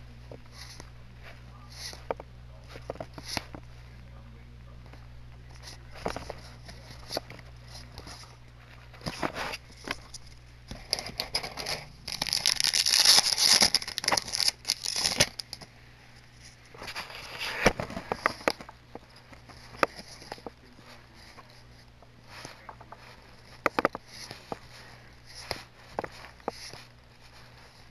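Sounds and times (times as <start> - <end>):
faint low hum: 0.0 - 27.9
cards and plastic crinkling: 5.5 - 15.7, 22.3 - 27.9.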